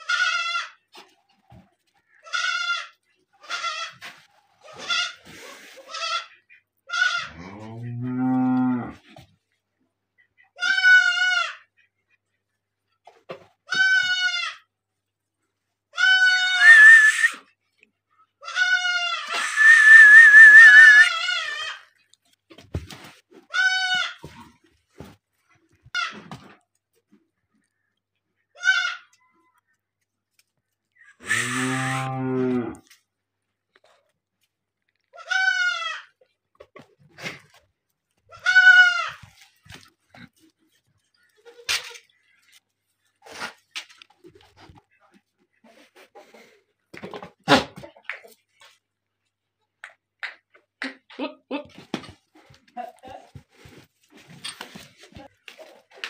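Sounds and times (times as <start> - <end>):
goats bleating: 2.2 - 4.0, 38.3 - 39.3
shrill wavering harsh cry: 16.1 - 17.4, 18.7 - 21.8.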